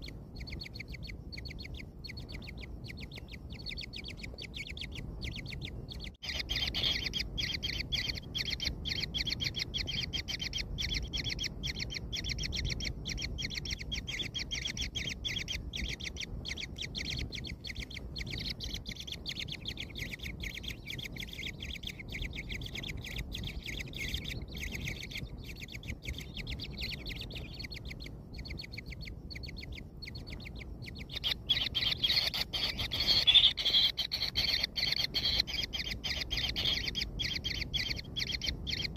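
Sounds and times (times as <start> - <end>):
nestlings chirping: 0.0 - 38.9.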